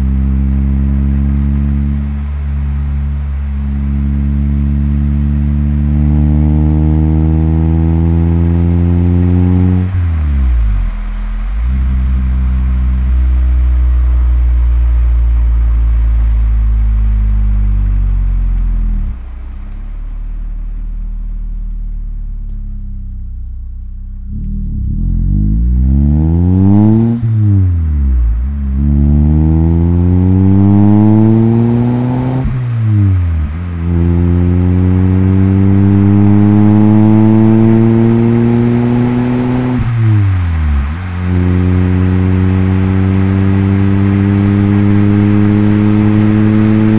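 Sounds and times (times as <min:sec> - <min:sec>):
car engine revving through gears: 0:00.0 - 0:11.0, 0:24.2 - 0:46.9.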